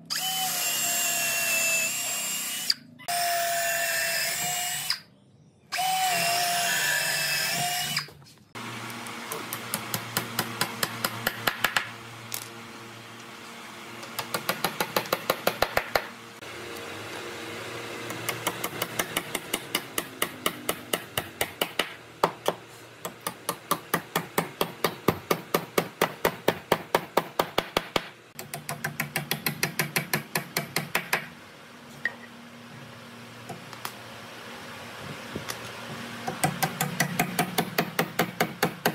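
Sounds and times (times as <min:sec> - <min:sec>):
cordless drill running: 0:00.1 - 0:05.0, 0:05.7 - 0:09.6.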